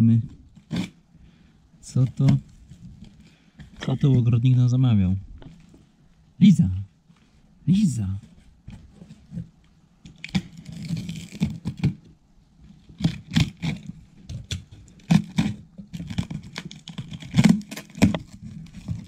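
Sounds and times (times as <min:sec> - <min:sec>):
packaging tearing and crinkling: 0:10.1 - 0:12.0, 0:12.9 - 0:19.0.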